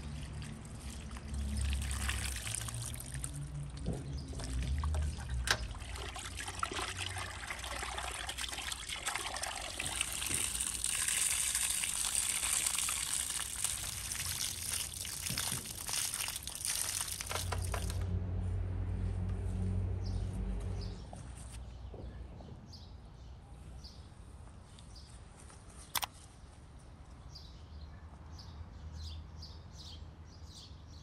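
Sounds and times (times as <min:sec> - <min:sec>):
water pouring and trickling: 0:00.0 - 0:18.1.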